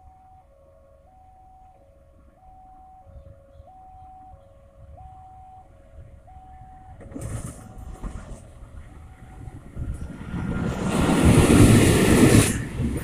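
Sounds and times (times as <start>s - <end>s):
two-tone crossing alarm: 0.0s - 8.2s
diesel locomotive rumble: 1.6s - 13.0s
train rushing past: 7.0s - 13.0s.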